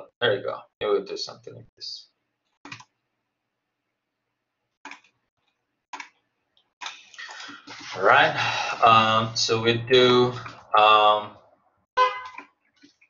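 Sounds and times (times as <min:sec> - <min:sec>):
computer mouse clicks: 0:02.6 - 0:03.0, 0:04.8 - 0:07.9.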